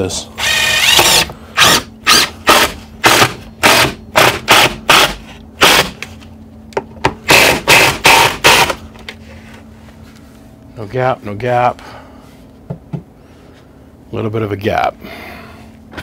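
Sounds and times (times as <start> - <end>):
power drill driving screws into wood: 0.4 - 6.0, 7.3 - 8.8.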